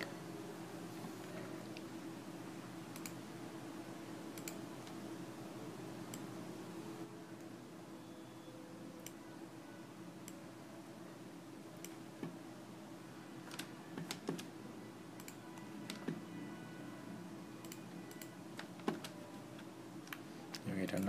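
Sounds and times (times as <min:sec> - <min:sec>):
faint hum: 0:00.0 - 0:21.0
keyboard and mouse clicks: 0:02.9 - 0:03.2, 0:04.4 - 0:05.0, 0:15.2 - 0:16.2, 0:17.6 - 0:21.0.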